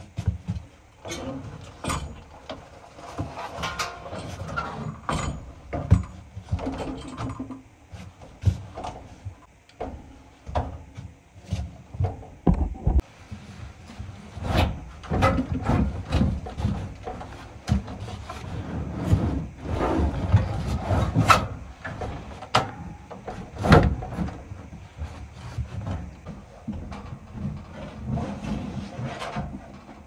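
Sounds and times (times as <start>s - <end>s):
metal knocks and clunks: 12.0s - 13.1s.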